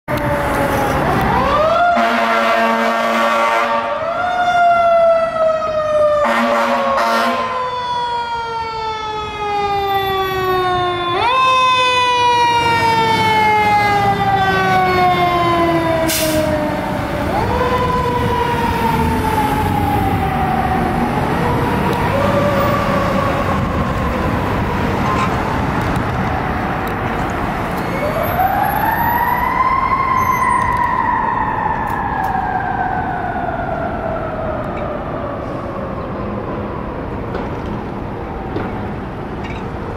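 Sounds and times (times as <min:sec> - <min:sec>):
traffic noise: 0:00.0 - 0:39.9
fire engine siren wailing: 0:00.1 - 0:39.9
air horn blast: 0:02.0 - 0:04.0, 0:06.2 - 0:07.6, 0:16.1 - 0:16.5
truck engine: 0:10.3 - 0:28.4.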